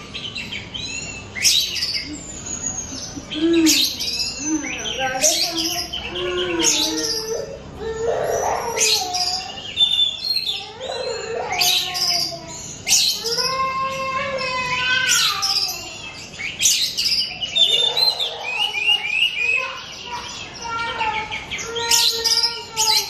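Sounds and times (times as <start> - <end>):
bird singing whistled phrases: 15.1 - 23.0.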